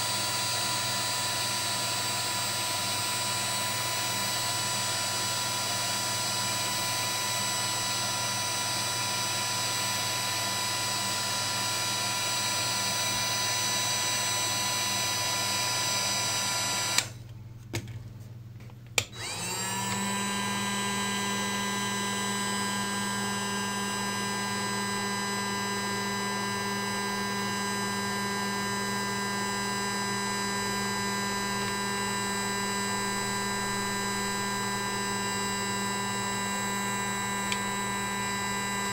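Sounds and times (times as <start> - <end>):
hot air gun fan whining: 0.0 - 17.2, 19.0 - 23.3, 30.0 - 38.9.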